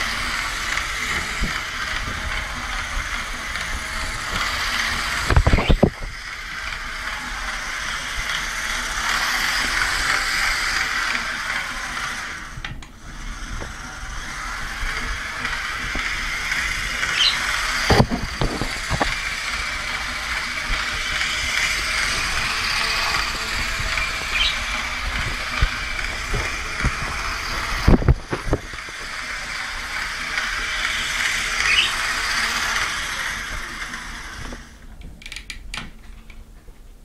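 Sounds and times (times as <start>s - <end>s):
toy train whirring and rattling: 0.0s - 36.5s
short squeaks: 17.1s - 17.5s, 24.3s - 24.6s.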